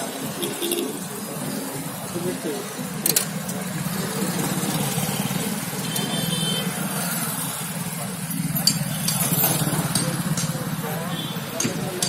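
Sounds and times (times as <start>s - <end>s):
road and cabin noise: 0.0s - 12.0s
bus diesel engine running: 6.8s - 12.0s.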